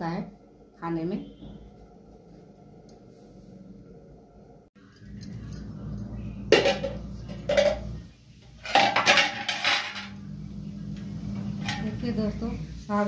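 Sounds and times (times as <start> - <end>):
metal lid and spatula clanking: 6.5 - 8.0, 8.6 - 10.2, 11.4 - 12.1.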